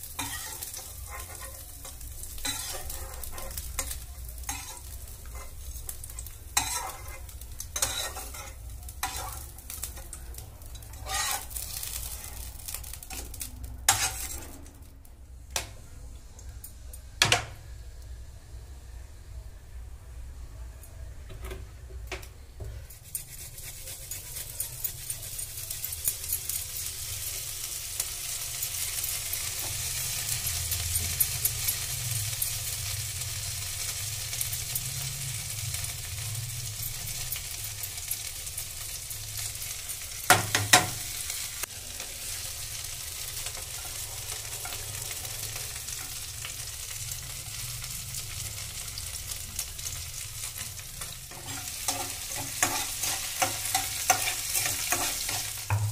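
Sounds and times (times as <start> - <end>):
oil sizzling and crackling: 0.0 - 18.8, 21.5 - 55.9.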